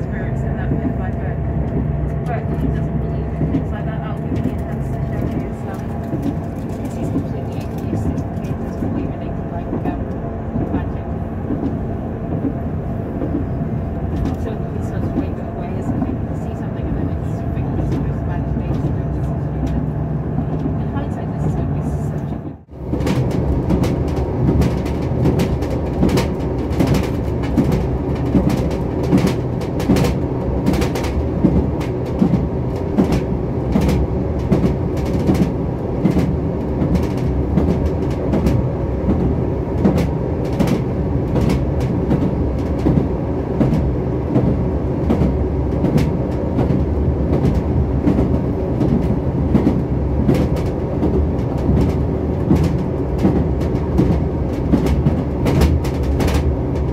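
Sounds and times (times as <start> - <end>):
train wheels rumbling on track: 0.0 - 56.9
wheels clicking over rail joints: 0.0 - 56.9.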